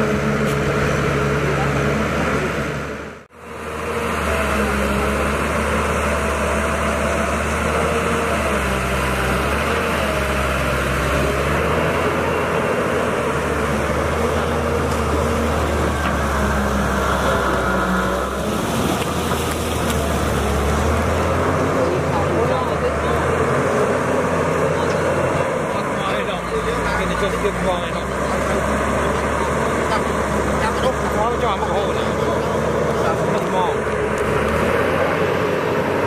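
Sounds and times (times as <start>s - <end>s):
excavator diesel engine droning: 0.0s - 36.0s.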